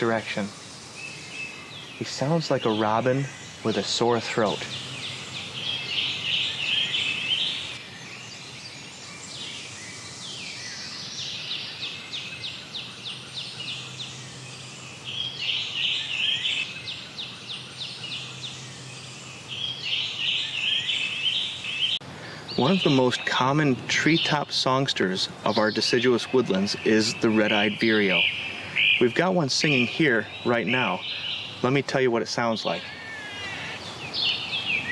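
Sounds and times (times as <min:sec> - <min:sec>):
bird singing hoarse phrases: 0:00.0 - 0:34.9.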